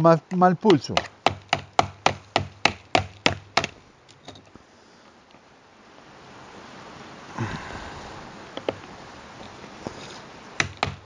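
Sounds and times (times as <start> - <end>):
faint hiss: 3.7 - 11.0.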